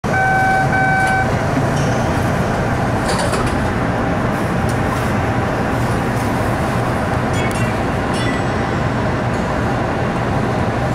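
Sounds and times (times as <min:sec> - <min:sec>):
subway car wheels and motors rumbling: 0:00.0 - 0:10.9
short electronic beeps: 0:00.1 - 0:01.3.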